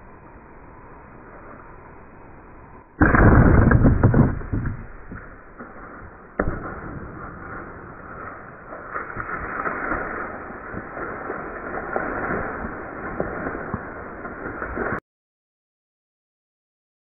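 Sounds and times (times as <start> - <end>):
clattering and crashing: 3.0 - 5.3.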